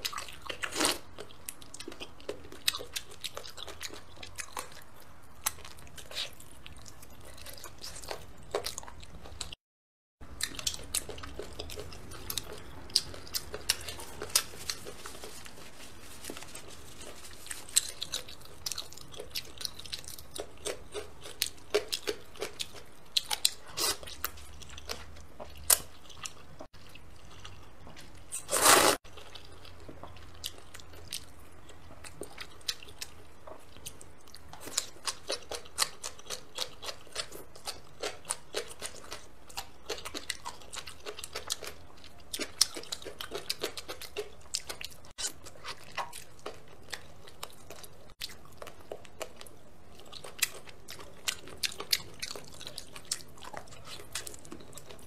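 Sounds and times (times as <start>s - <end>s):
wet chewing and smacking: 0.0s - 9.6s, 10.2s - 55.0s
slurp: 28.4s - 29.0s.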